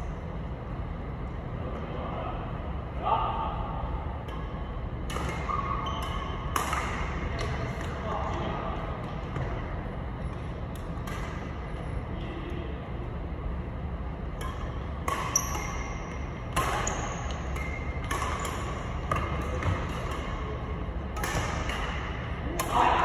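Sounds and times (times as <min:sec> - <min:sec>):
low hum in hall: 0:00.0 - 0:23.0
racket hitting shuttlecock: 0:04.3 - 0:08.0, 0:10.7 - 0:11.6, 0:14.4 - 0:23.0
sneakers squeaking on wooden floor: 0:15.3 - 0:15.9.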